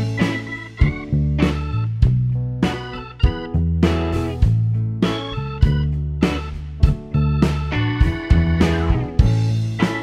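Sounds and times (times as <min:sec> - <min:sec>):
plucked guitar over bass line: 0:00.0 - 0:10.0.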